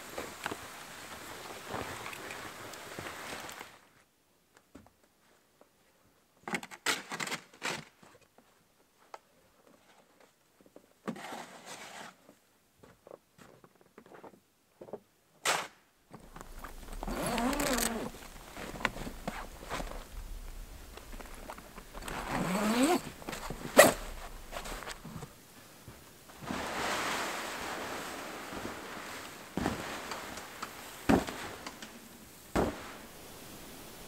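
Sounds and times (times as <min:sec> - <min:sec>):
boots crunching on snow: 0:16.2 - 0:25.3
tent door zipper opening: 0:16.3 - 0:25.4.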